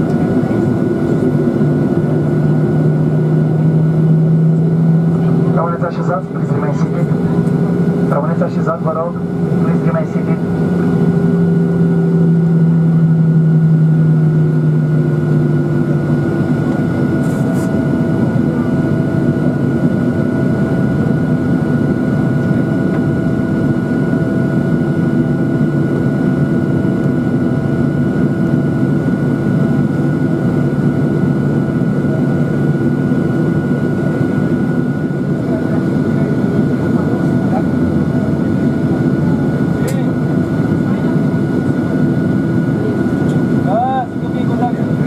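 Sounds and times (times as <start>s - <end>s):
low drone: 0.0s - 26.5s
jet engines idling whine: 0.0s - 45.0s.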